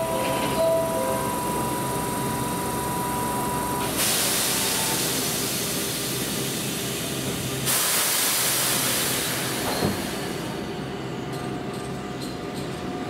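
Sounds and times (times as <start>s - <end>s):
compressed air hissing from train: 3.8s - 10.7s.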